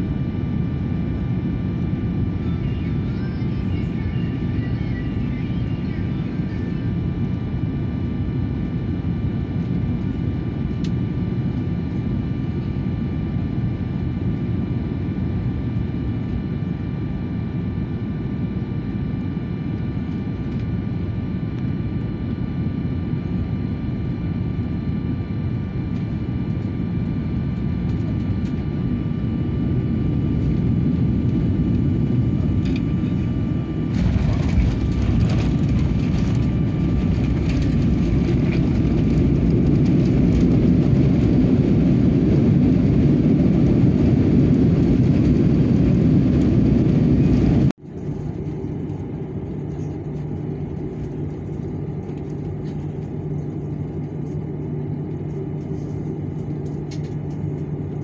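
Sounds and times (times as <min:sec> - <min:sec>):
engine whine: 0:00.0 - 0:58.0
jet cabin rumble: 0:00.0 - 0:58.0
runway roll rumble and rattle: 0:33.9 - 0:41.4.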